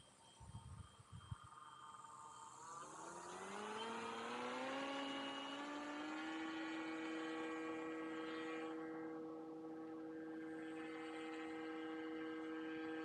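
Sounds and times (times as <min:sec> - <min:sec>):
propeller motor whine: 0:02.4 - 0:13.0.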